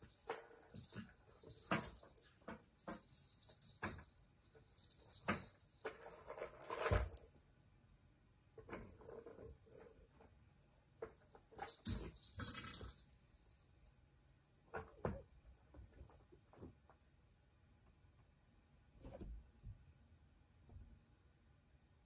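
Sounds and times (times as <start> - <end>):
balls rattling around plastic tracks: 0.0 - 7.3.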